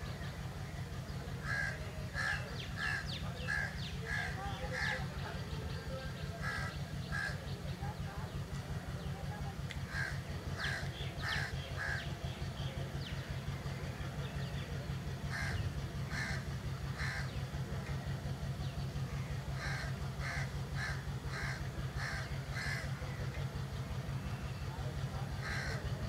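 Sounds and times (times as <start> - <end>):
diesel locomotive engine throbbing: 0.0 - 26.0
crows cawing: 1.4 - 5.1, 6.4 - 7.4, 9.9 - 12.1, 15.3 - 17.4, 19.5 - 23.1, 25.4 - 26.0.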